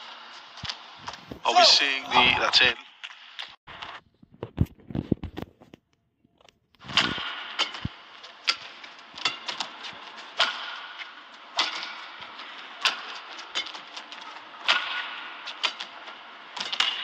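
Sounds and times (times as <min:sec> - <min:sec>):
arena background noise: 0:00.0 - 0:02.8.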